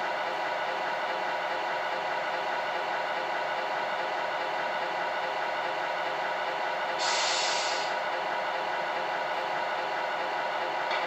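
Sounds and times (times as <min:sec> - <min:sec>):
diesel truck idling: 0:00.0 - 0:11.0
air brake hiss: 0:07.0 - 0:08.0.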